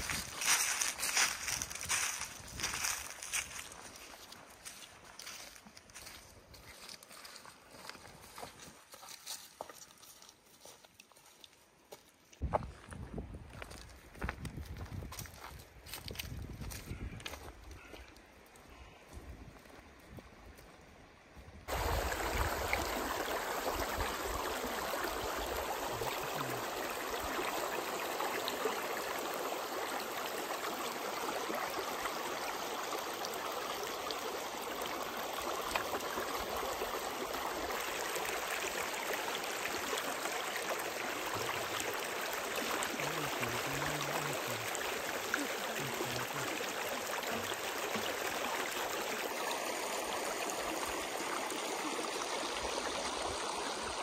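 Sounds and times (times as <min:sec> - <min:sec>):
stream flowing over stones: 0:00.0 - 0:12.5, 0:21.7 - 0:54.0.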